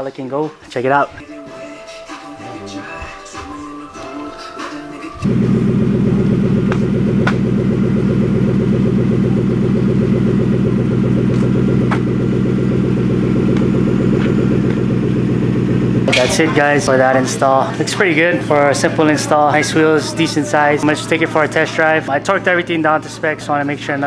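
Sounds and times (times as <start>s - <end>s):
car engine idling: 4.5s - 24.0s.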